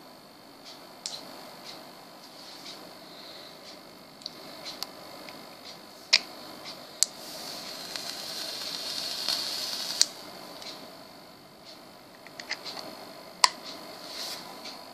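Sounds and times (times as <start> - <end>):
vape coil hissing and sizzling: 6.8 - 11.0.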